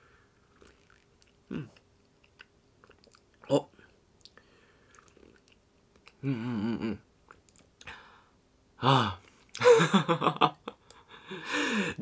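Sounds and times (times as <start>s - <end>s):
man humming mmm: 1.5s - 1.8s, 6.2s - 7.1s
man sighing ahh: 8.8s - 9.7s, 11.2s - 12.0s.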